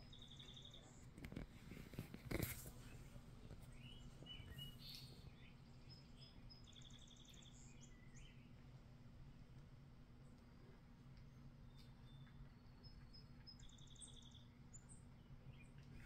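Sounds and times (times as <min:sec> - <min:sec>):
faint high-pitched chirps: 0:00.0 - 0:01.4, 0:03.7 - 0:08.6
faint low hum: 0:00.0 - 0:16.0.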